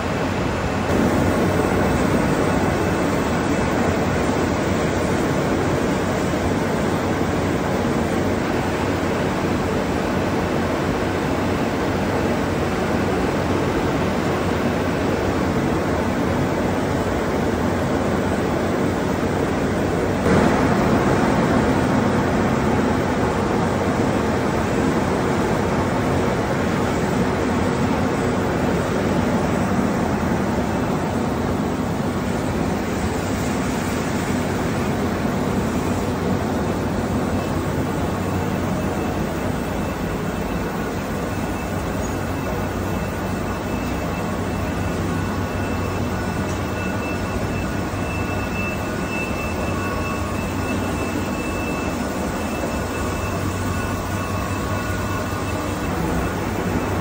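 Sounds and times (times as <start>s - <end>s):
machinery drone: 0.0s - 9.1s, 20.2s - 57.0s
faint high whine: 27.0s - 57.0s.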